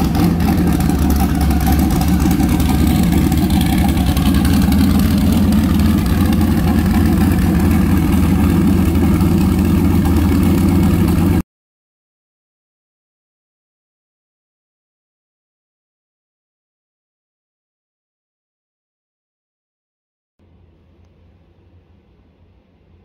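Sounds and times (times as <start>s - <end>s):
car engine idling: 0.0s - 11.4s.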